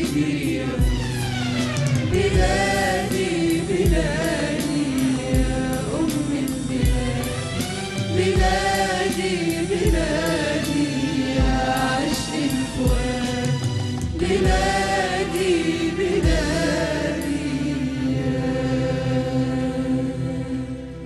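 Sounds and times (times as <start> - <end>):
low drum beat: 0.0 - 10.8, 11.4 - 16.9
mixed choir singing with vibrato: 0.0 - 21.0.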